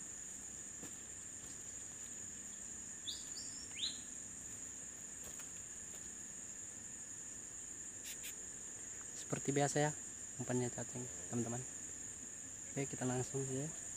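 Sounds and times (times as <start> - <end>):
insect chorus drone: 0.0 - 13.9
bird chirping: 3.0 - 4.2.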